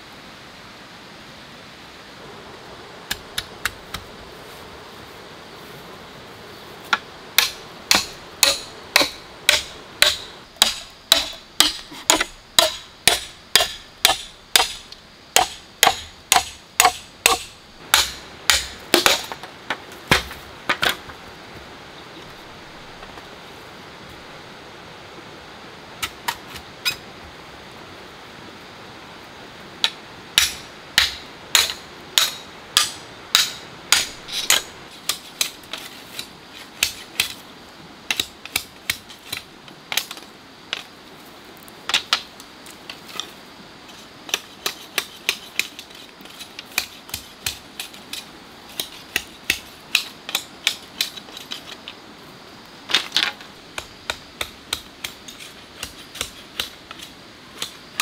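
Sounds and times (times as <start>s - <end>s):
machete chopping bamboo: 6.9s - 19.5s, 20.1s - 21.1s, 30.4s - 37.4s, 48.7s - 51.6s, 52.9s - 57.0s.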